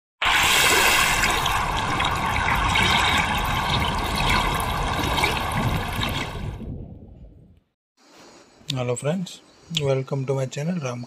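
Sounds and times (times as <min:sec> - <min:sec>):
splashing rushing water: 0:00.2 - 0:06.7.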